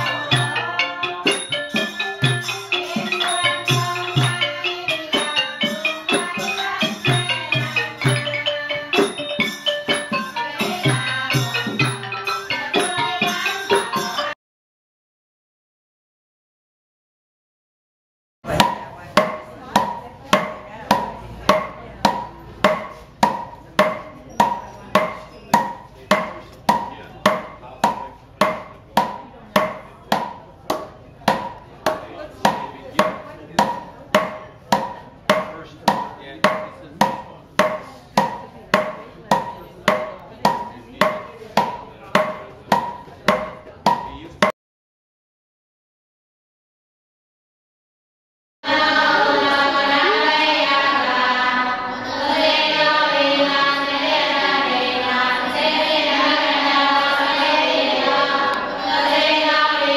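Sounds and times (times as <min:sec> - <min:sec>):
hammer beating on a block: 0:18.5 - 0:44.2.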